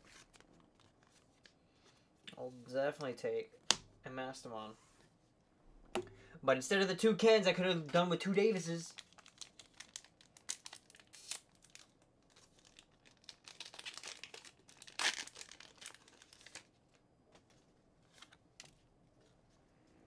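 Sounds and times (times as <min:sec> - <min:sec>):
foil wrapper tearing and crinkling: 0:08.9 - 0:16.7.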